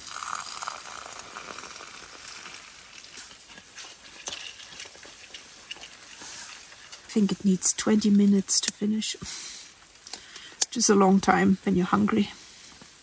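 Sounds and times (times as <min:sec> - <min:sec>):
hot water pouring into pouch: 0:00.0 - 0:07.1.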